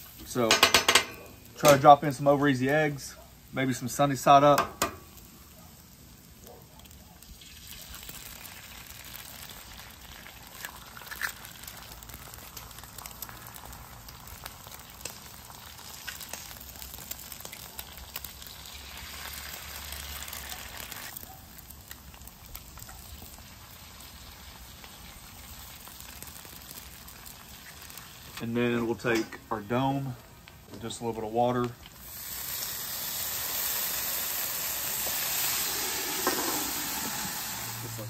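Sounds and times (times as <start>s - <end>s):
eggs sizzling on a griddle: 0.0s - 28.8s, 30.2s - 38.0s
eggshells cracking: 7.4s - 20.0s.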